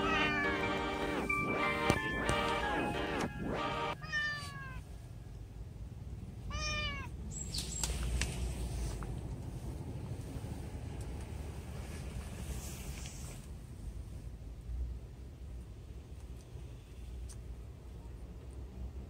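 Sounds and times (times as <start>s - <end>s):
cat meowing: 0.0s - 1.2s, 4.0s - 4.9s, 6.5s - 7.2s.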